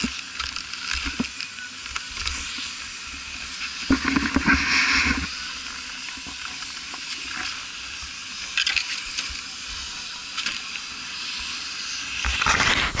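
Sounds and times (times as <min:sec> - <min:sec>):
steady hiss: 0:00.0 - 0:13.0
skis scraping on snow: 0:02.0 - 0:13.0.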